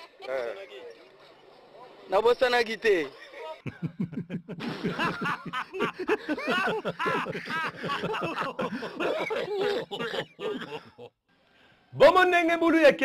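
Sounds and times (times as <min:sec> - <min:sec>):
small crowd laughing: 0:03.4 - 0:11.2.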